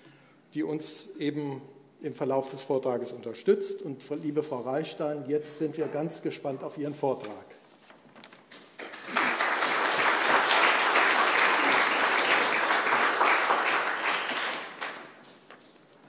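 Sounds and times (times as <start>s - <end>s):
audience applauding: 8.5s - 15.5s.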